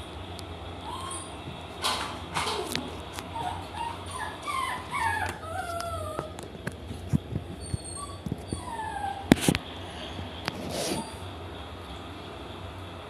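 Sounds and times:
dog whimpering: 0.8s - 1.5s, 2.4s - 6.4s, 7.6s - 9.4s, 10.7s - 11.3s.

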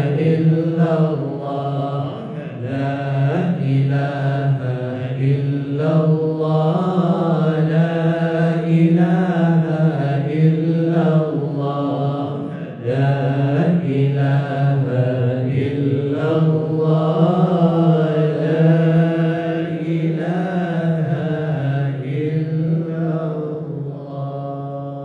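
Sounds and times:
group of voices chanting: 1.0s - 4.0s.

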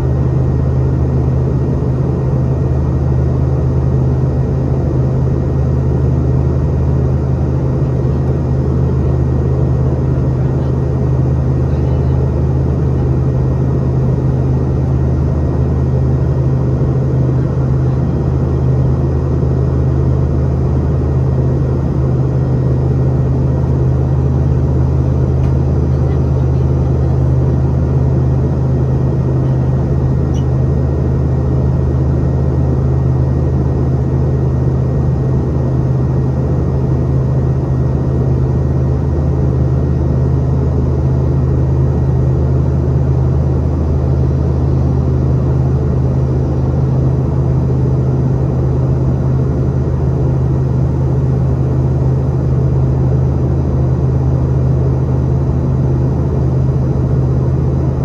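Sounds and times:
airliner cabin engine drone: 0.0s - 58.0s.

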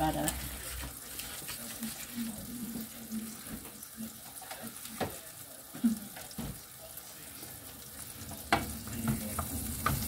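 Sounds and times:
mushrooms sizzling in a pan: 0.0s - 10.0s
wooden spoon clacking on pan: 8.3s - 10.0s.

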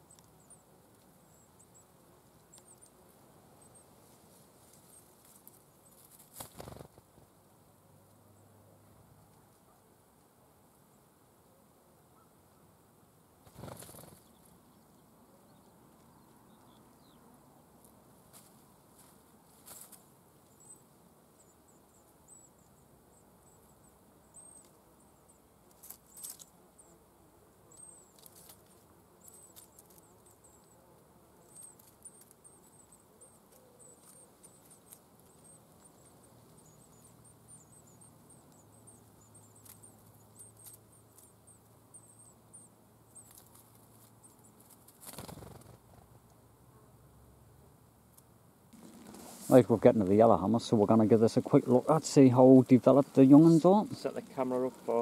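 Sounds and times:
rustles in grass: 0.9s - 7.4s, 13.4s - 14.6s, 17.9s - 20.8s, 48.7s - 55.0s.

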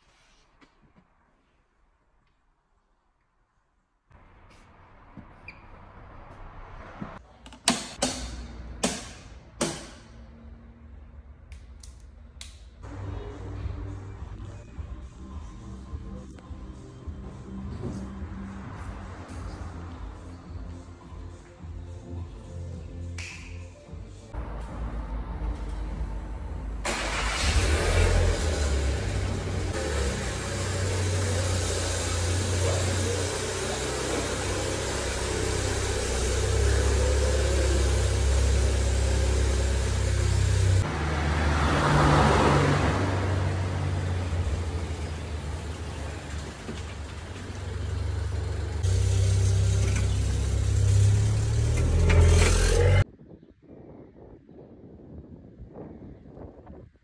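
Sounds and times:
car engine revving: 24.4s - 53.0s.

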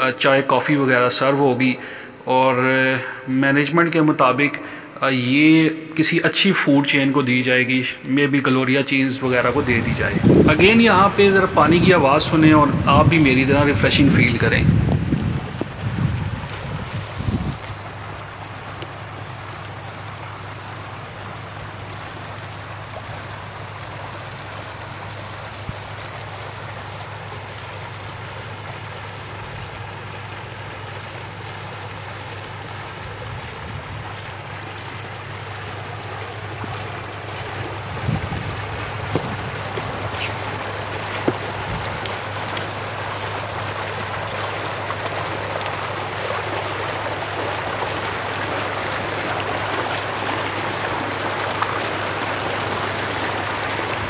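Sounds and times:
fountain water splashing: 0.0s - 54.0s
low bumps: 9.6s - 18.4s, 37.4s - 43.7s.

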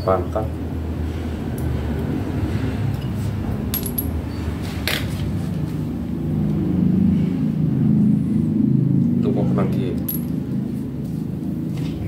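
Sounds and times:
low steady rumble: 0.3s - 12.0s
metal parts clinking: 3.7s - 4.2s.

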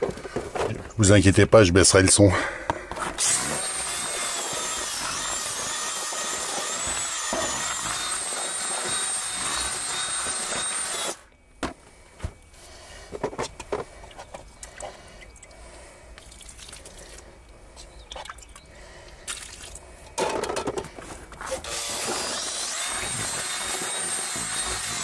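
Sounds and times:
electric drill mixing: 3.2s - 11.2s, 21.4s - 25.0s.

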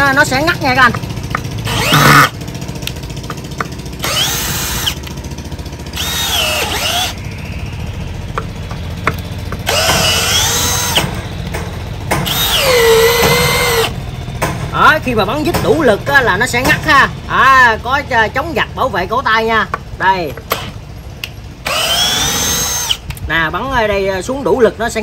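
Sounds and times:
drill motor whining: 0.7s - 2.4s, 3.4s - 14.2s, 21.6s - 23.1s.

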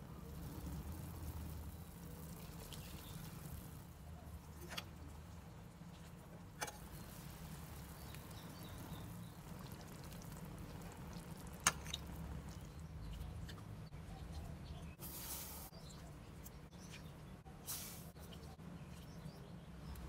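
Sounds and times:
soup simmering in saucepan: 0.0s - 13.0s.

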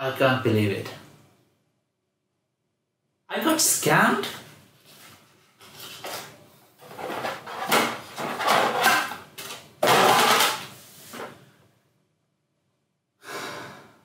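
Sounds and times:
paper sheets rustling: 4.8s - 9.1s.

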